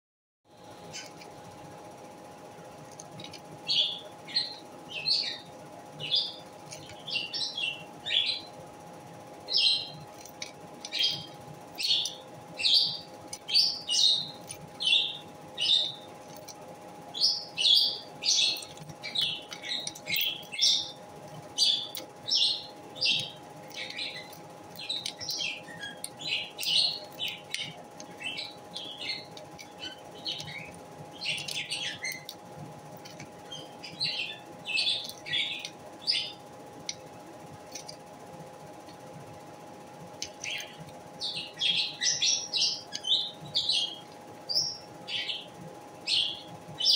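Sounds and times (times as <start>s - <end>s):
lovebird chirping: 10.8s - 16.1s, 17.1s - 32.3s, 33.4s - 36.4s.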